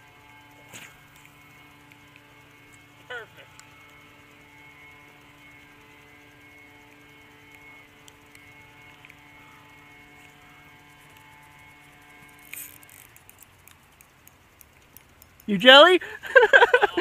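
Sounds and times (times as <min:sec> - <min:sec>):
faint steady hum: 0:00.0 - 0:17.0
light ticks: 0:12.9 - 0:15.6.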